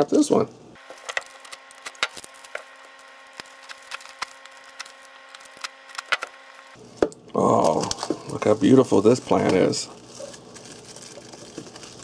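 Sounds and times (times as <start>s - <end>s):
knife cutting plastic bag: 0.8s - 6.8s, 9.1s - 12.0s
plastic film crackling: 0.8s - 6.8s, 7.5s - 12.0s.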